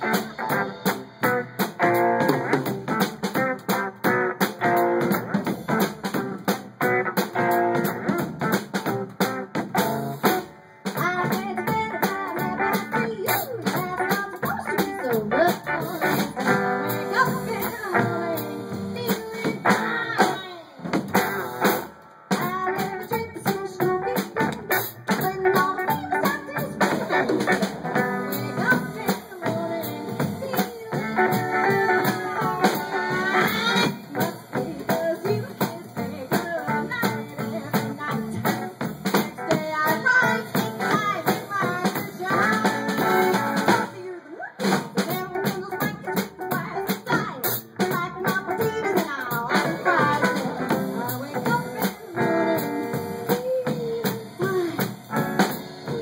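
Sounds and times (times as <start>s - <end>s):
upright bass: 0.0s - 20.3s, 22.4s - 43.9s, 45.1s - 56.0s
swing band music: 0.0s - 56.0s
woman singing: 10.9s - 20.9s, 22.3s - 56.0s.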